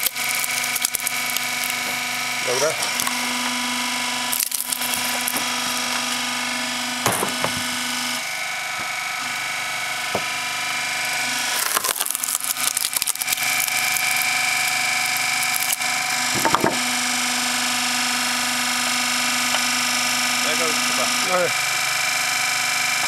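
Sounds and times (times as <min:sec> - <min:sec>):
wood cracking and splintering: 0:00.0 - 0:06.3, 0:11.1 - 0:17.2
log splitter pump drone: 0:00.0 - 0:23.0.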